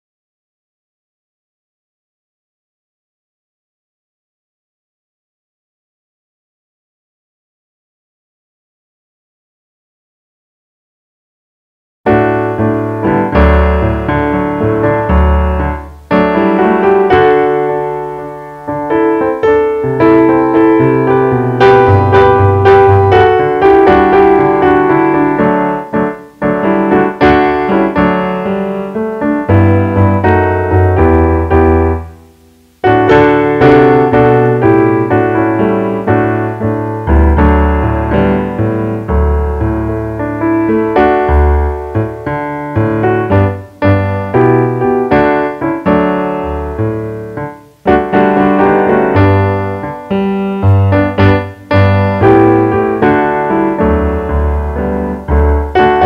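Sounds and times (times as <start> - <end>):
solo piano: 12.1 - 56.0.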